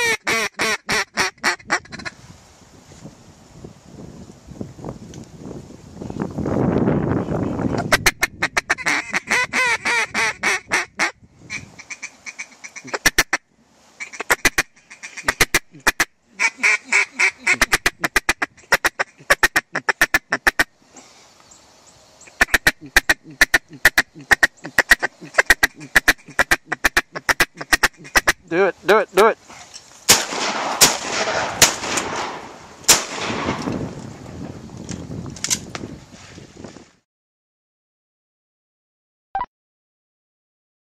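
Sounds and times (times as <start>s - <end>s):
duck call quacks: 0.0s - 2.1s, 7.9s - 13.4s, 14.0s - 20.7s, 22.4s - 28.6s
shotgun blasts: 30.1s - 33.7s.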